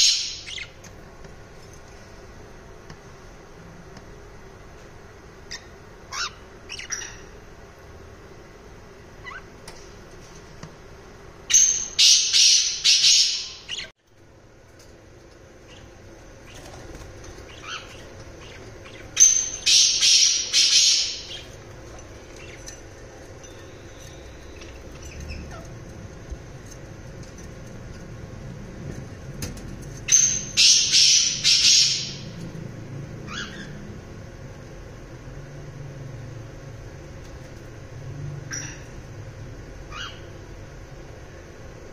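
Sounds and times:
parrots squawking: 5.5 - 7.4, 9.2 - 9.5, 17.4 - 21.6, 24.1 - 25.7, 30.1 - 32.4, 33.2 - 33.8, 39.9 - 40.3.

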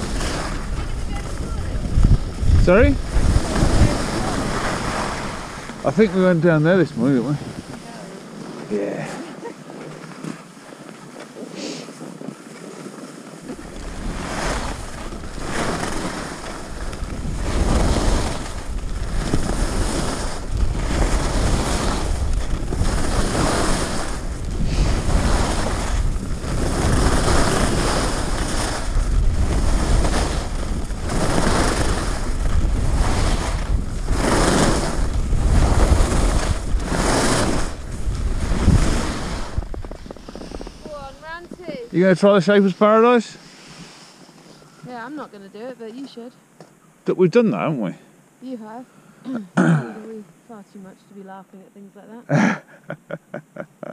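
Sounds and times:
skis scraping on crunchy snow: 0.0 - 9.1, 9.7 - 45.3
wind rumble on microphone: 0.0 - 42.0.

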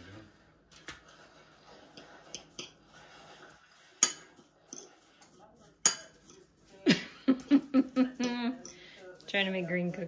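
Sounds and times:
fork clinking against ceramic bowl: 4.0 - 5.0, 5.8 - 6.5, 7.4 - 8.9.

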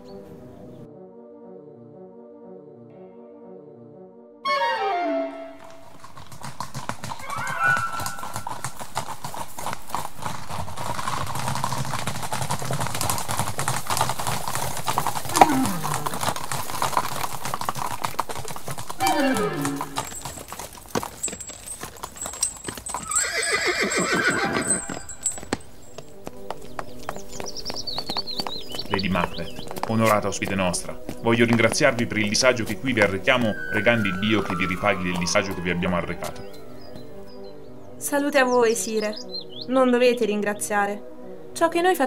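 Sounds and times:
horse whinnying: 4.5 - 25.7, 32.9 - 36.9
horse hooves clattering: 5.4 - 39.7.

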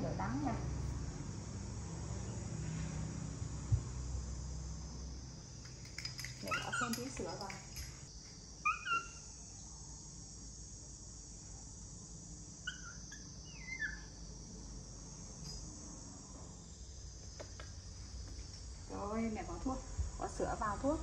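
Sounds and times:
insects humming: 0.0 - 21.0
baby monkey squeaking: 6.4 - 7.1, 8.7 - 9.2, 12.7 - 14.1.

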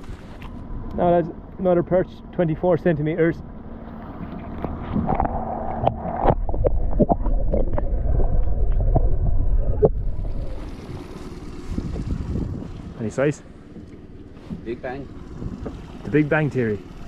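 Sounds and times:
water gurgling and sloshing: 3.4 - 17.0.

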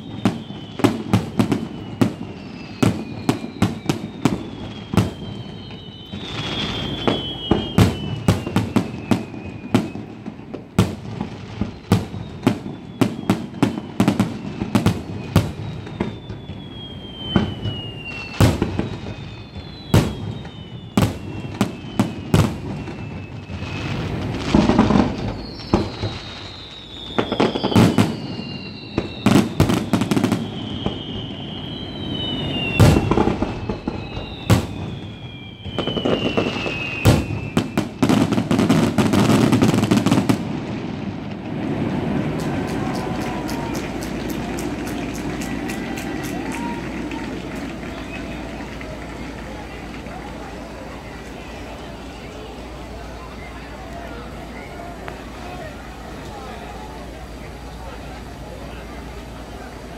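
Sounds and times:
whistles falling in pitch: 0.0 - 10.6, 11.5 - 40.4, 42.3 - 55.8
heavy firework booms: 0.0 - 44.8
fireworks bangs and crackling: 0.0 - 59.9.

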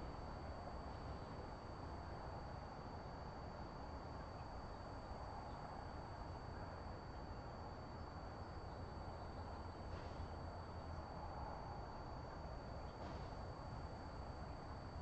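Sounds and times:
faint high-pitched whine: 0.0 - 15.0
steady low background noise: 0.0 - 15.0.

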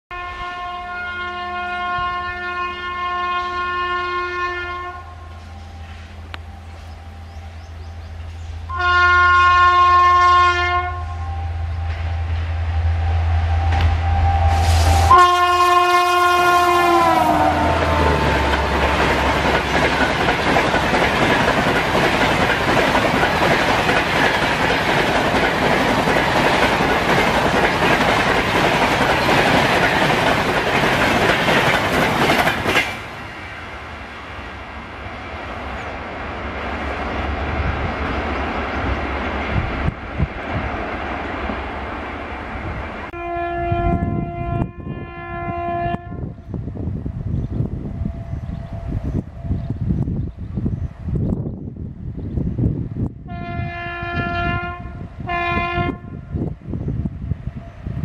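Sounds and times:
train horn blasts: 0.1 - 7.6, 8.7 - 19.8, 43.1 - 46.4, 53.2 - 56.4
distant train rumble: 0.1 - 58.0
train wheel-and-rail noise: 5.1 - 43.2, 45.8 - 58.0.

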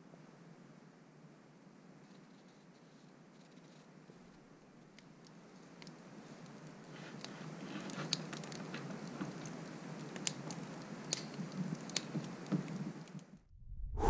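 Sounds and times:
wood fire crackling: 4.0 - 13.5.

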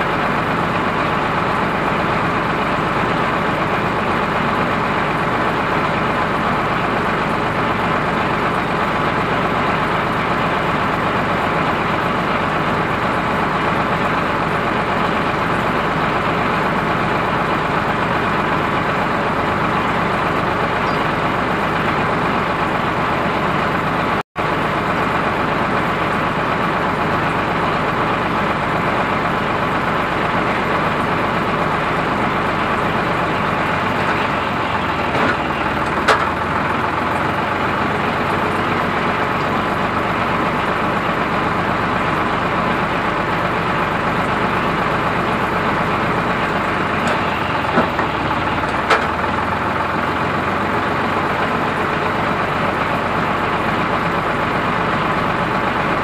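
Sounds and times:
tractor engine running: 0.0 - 56.0.

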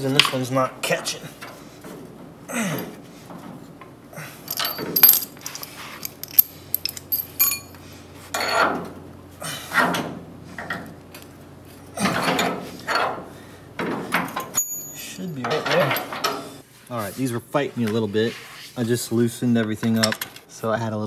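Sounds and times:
bolts and washers clinking: 4.4 - 7.8, 13.8 - 16.5, 19.8 - 20.5
rustling scrapes: 16.5 - 19.2.

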